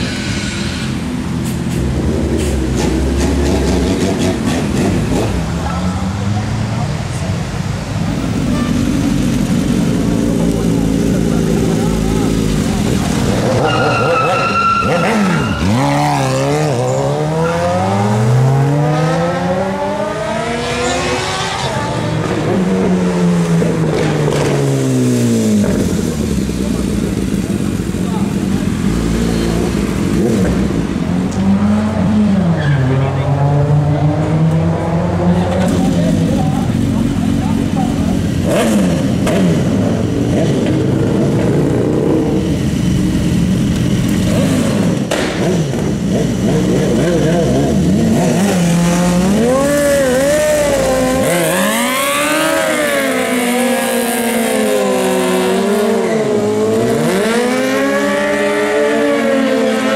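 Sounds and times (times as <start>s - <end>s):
motorcycle engines revving: 0.0s - 59.9s
motorcycle engine accelerating: 33.4s - 59.9s.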